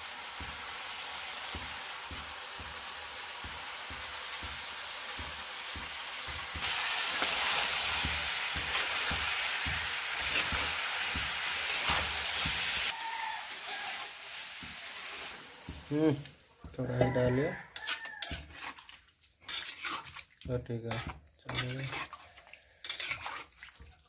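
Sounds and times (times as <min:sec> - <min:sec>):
vegetables sizzling in hot oil: 0:00.0 - 0:23.9
metal spatula scraping a pan: 0:03.5 - 0:15.9, 0:16.6 - 0:23.8.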